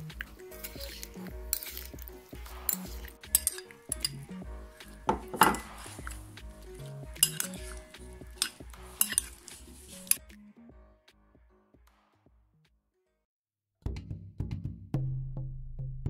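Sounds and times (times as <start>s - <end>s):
soft background music: 0.0s - 12.7s
metal spoon clinking on glass bowl: 0.6s - 2.0s, 2.7s - 4.3s, 5.1s - 5.9s, 7.2s - 9.4s.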